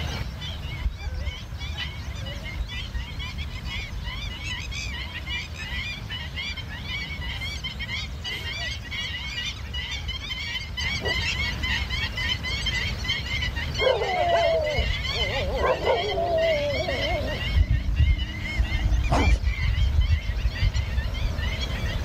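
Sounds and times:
small birds chirping: 0.0 - 22.0
wavering animal call: 13.3 - 19.8.

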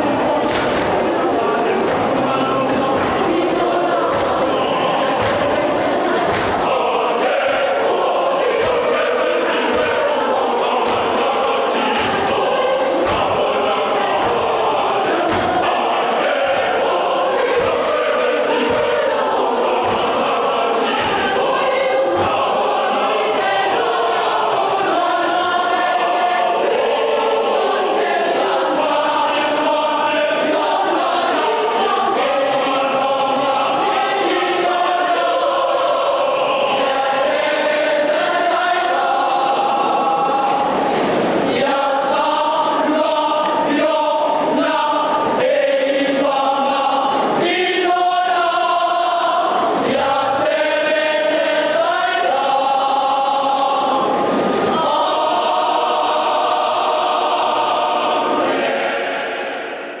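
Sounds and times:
women's choir singing: 0.0 - 60.0.

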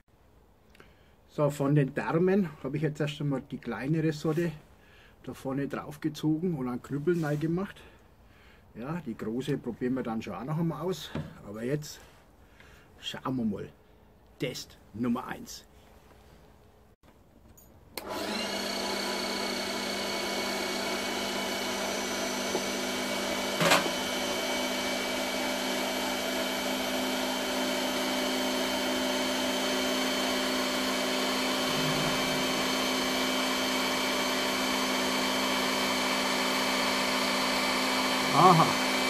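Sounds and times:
electric meat grinder motor hum: 18.0 - 39.0.

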